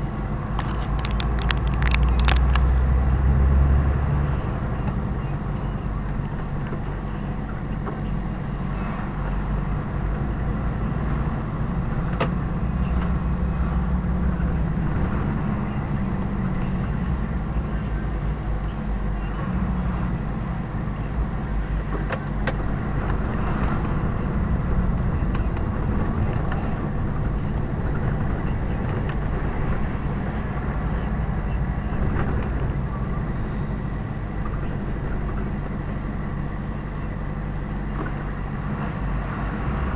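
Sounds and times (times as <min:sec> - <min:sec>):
truck diesel engine droning: 0:00.0 - 0:39.9
sharp clicks: 0:00.6 - 0:02.7.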